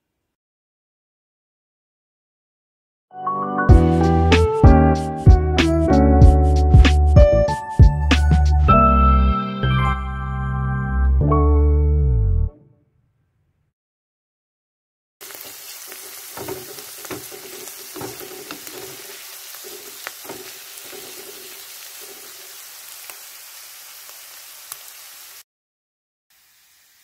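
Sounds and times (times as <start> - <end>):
stirring knocks: 15.2 - 22.4
mushrooms sizzling in a pan: 15.2 - 25.4, 26.3 - 27.0.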